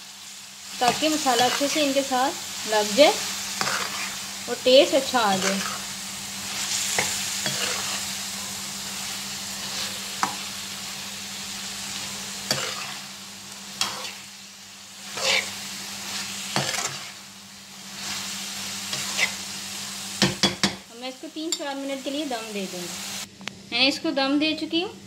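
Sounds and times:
vegetables sizzling in a pan: 0.0s - 25.0s
metal spatula scraping pan: 3.6s - 4.2s, 5.2s - 5.9s, 6.9s - 8.1s, 12.5s - 13.0s, 13.8s - 14.2s, 15.1s - 17.2s, 18.9s - 19.4s.

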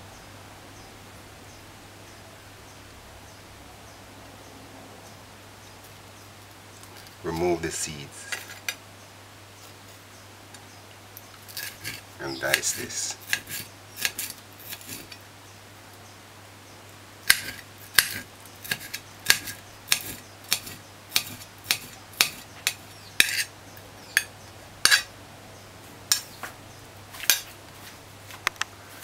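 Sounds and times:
knife striking a ceramic plate: 17.3s - 23.5s, 24.1s - 25.1s.

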